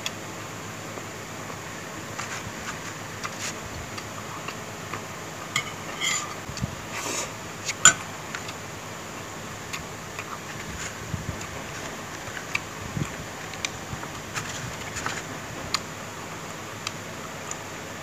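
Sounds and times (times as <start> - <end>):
person chewing: 2.2 - 5.1, 9.7 - 14.9.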